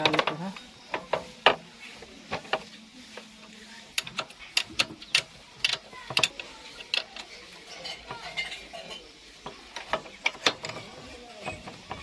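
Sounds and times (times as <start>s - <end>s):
spanner clinking on metal nut: 4.0s - 9.0s.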